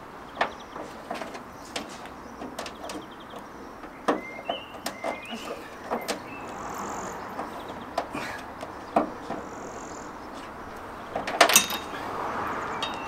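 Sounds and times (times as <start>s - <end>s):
clicks and knocks of car parts: 0.3s - 6.6s, 7.3s - 9.6s, 10.3s - 12.0s.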